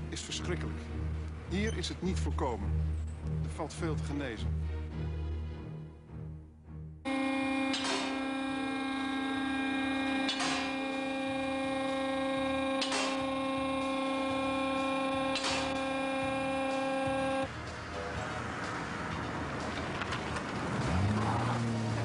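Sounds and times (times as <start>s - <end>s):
electronic drone: 7.1s - 17.5s.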